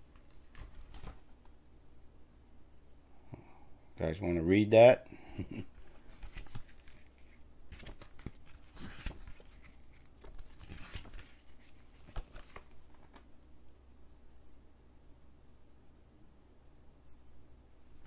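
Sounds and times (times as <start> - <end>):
paper pages rustling: 0.0 - 1.6, 5.8 - 13.3.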